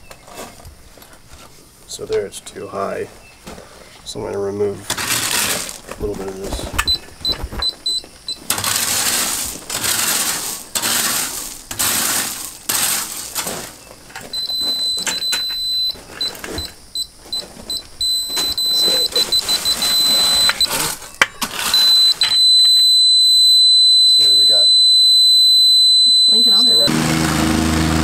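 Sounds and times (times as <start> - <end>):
rake scraping gravel: 0.0 - 1.8, 2.7 - 22.6, 26.3 - 28.0
high electronic beeping tone: 14.4 - 20.9, 21.6 - 26.9.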